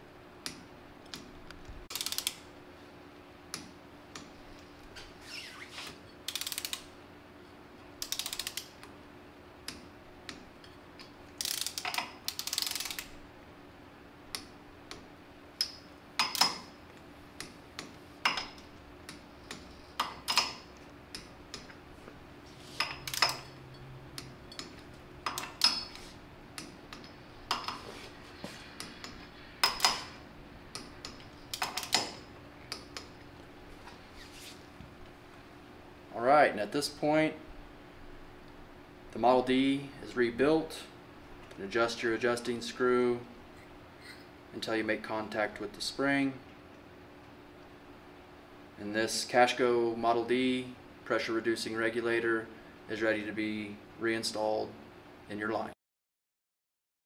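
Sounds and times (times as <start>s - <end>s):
torque wrench ratchet clicking: 1.9s - 2.4s, 6.3s - 6.8s, 8.0s - 8.7s, 11.4s - 13.1s.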